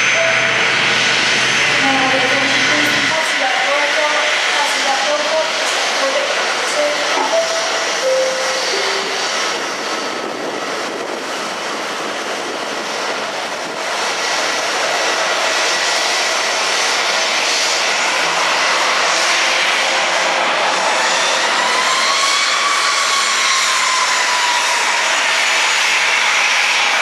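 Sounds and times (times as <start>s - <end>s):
jet engines whining: 0.0s - 27.0s.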